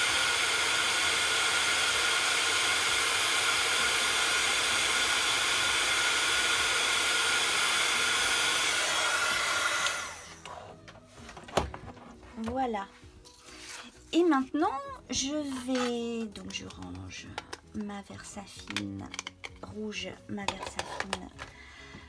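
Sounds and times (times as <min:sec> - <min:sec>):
heat gun hot air hiss: 0:00.0 - 0:10.4.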